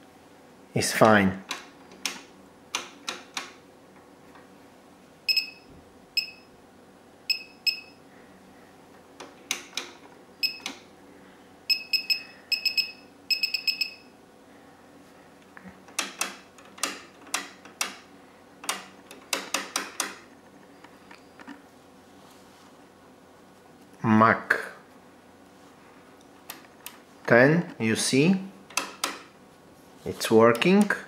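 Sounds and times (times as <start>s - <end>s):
electronic key beeps: 5.3s - 6.5s, 7.3s - 8.0s, 10.4s - 10.7s, 11.7s - 14.1s.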